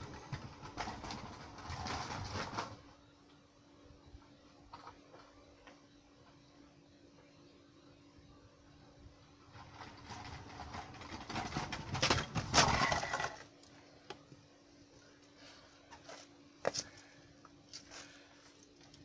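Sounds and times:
wheels rattling over slab joints: 0:00.0 - 0:02.9, 0:09.4 - 0:13.6.

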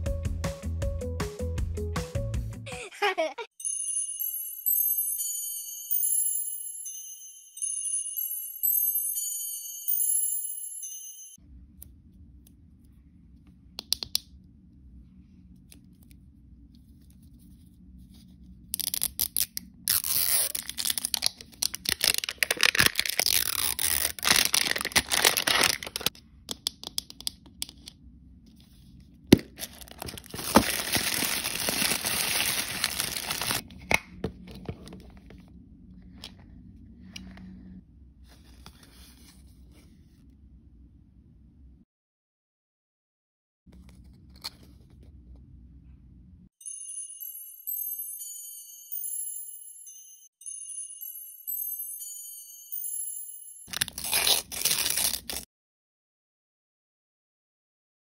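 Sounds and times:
plastic wrapper tearing and crinkling: 0:18.8 - 0:26.2, 0:29.4 - 0:33.6, 0:53.7 - 0:55.5.

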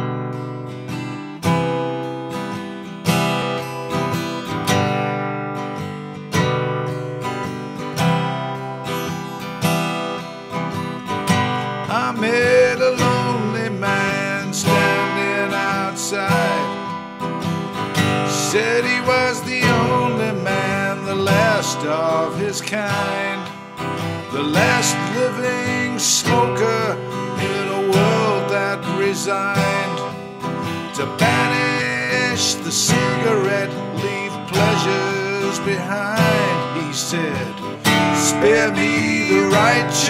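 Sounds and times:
acoustic guitar strumming chords: 0:00.0 - 0:40.0.

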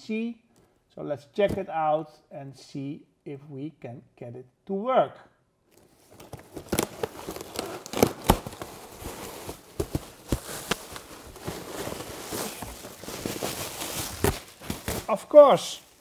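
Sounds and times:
packing tape pulled off: 0:05.8 - 0:15.2
cardboard flaps rustling: 0:05.8 - 0:16.0
plastic packing crinkling: 0:05.8 - 0:16.0.

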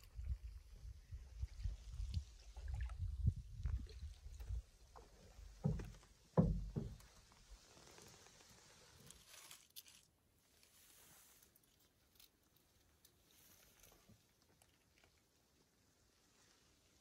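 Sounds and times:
small knocks on canoe: 0:04.4 - 0:07.3.

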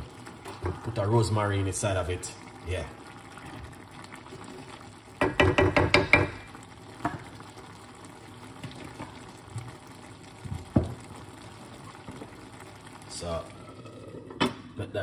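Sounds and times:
faint bubbling in pot: 0:00.0 - 0:15.0
wooden spoon knocking on pot: 0:05.2 - 0:07.3, 0:10.4 - 0:11.0.

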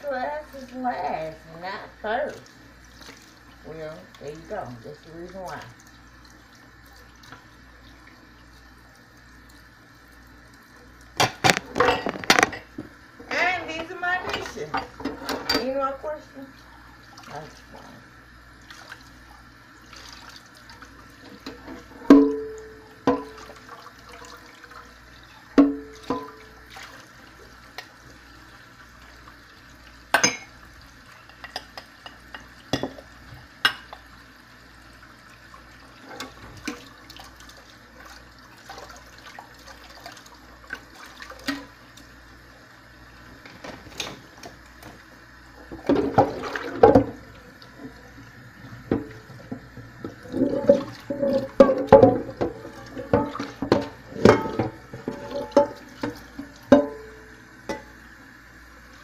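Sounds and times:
water sloshing and splashing: 0:02.1 - 0:09.5, 0:17.0 - 0:18.0, 0:18.6 - 0:27.6, 0:35.9 - 0:42.1, 0:45.6 - 0:57.2
dishes clinking: 0:11.2 - 0:12.7, 0:21.4 - 0:23.5, 0:25.6 - 0:26.5, 0:30.1 - 0:30.6, 0:31.2 - 0:33.0, 0:50.2 - 0:57.9.

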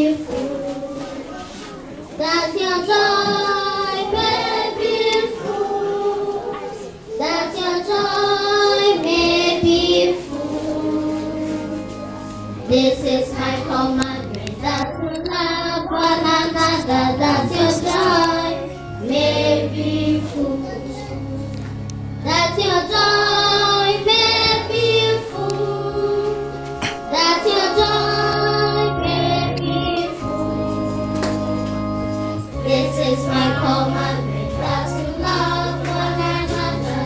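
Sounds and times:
children singing: 0:00.0 - 0:21.6, 0:22.2 - 0:37.0
steady low note: 0:16.2 - 0:36.7.

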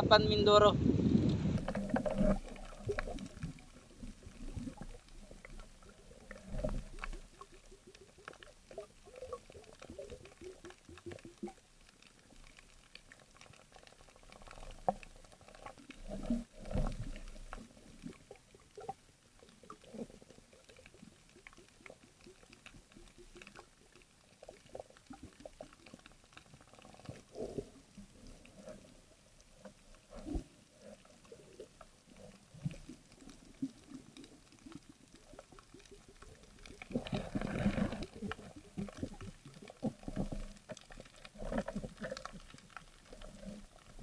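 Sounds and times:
low whooshes of water movement: 0:00.7 - 0:07.0
crackle of snapping shrimp clicks: 0:01.2 - 0:28.6, 0:29.5 - 0:44.0.

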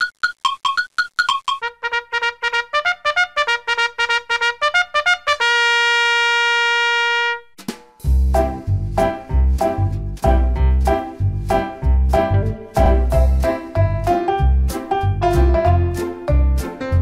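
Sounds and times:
staccato intro music: 0:07.6 - 0:17.0
heavy bass beat: 0:08.0 - 0:14.6.

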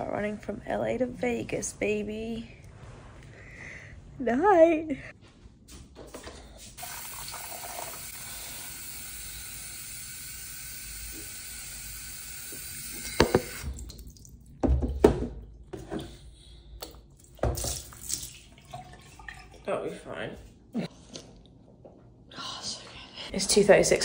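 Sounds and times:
tap water running into sink: 0:06.8 - 0:14.9.

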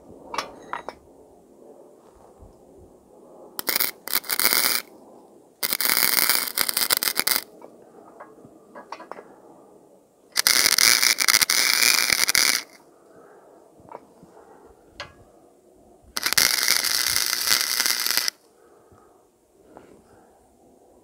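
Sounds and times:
welder arc crackling: 0:03.6 - 0:04.9, 0:05.6 - 0:07.5, 0:10.4 - 0:12.8, 0:16.2 - 0:18.4.

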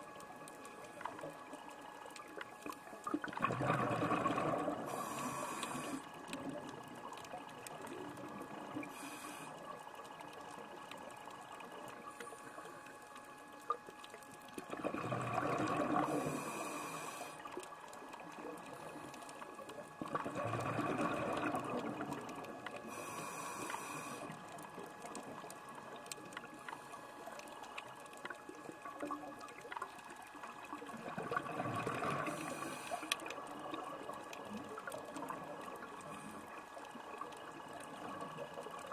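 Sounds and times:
exhaled bubbles rushing: 0:03.1 - 0:05.2, 0:14.6 - 0:16.5, 0:19.5 - 0:22.8, 0:28.4 - 0:36.1
regulator inhalation hiss: 0:04.9 - 0:06.0, 0:16.1 - 0:17.4, 0:22.9 - 0:24.3.

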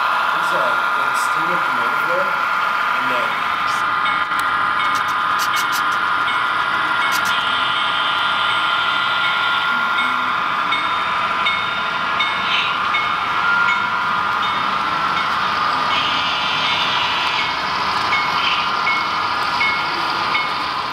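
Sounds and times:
model trains whining: 0:00.0 - 0:20.9
locomotive bell ringing: 0:04.0 - 0:05.1, 0:06.1 - 0:20.8.

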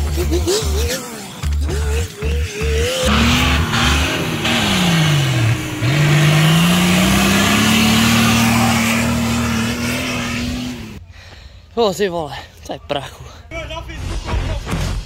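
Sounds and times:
engine revving hard under load: 0:02.8 - 0:11.0.

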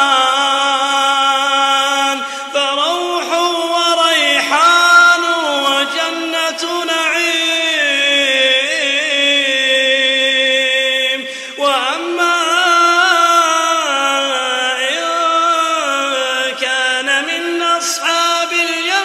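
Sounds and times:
man chanting melodically: 0:00.0 - 0:19.0
breath: 0:02.2 - 0:02.6, 0:11.2 - 0:11.6.

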